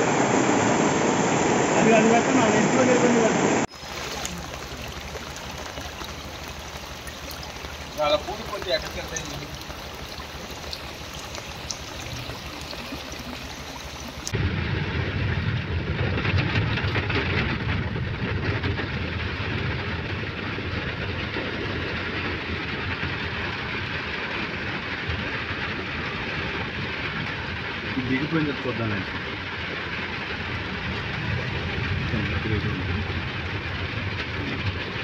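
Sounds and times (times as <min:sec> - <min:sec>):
floodwater rushing: 0:00.0 - 0:14.4
rain hissing: 0:00.0 - 0:35.0
vehicle engine and road rumble: 0:00.0 - 0:35.0.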